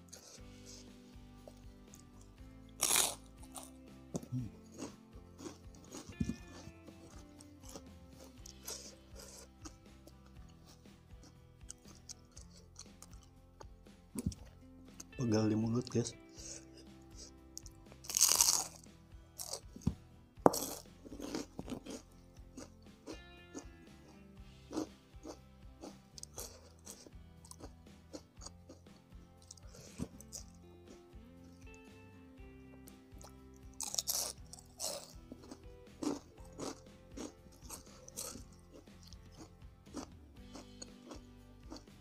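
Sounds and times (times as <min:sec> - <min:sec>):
crunchy chewing: 0:00.0 - 0:15.2, 0:15.8 - 0:31.9, 0:32.8 - 0:42.0
background music: 0:00.0 - 0:42.0
crunchy bite into fried snack: 0:02.8 - 0:09.8, 0:18.0 - 0:18.8, 0:19.4 - 0:22.0, 0:24.7 - 0:28.8, 0:33.2 - 0:41.9.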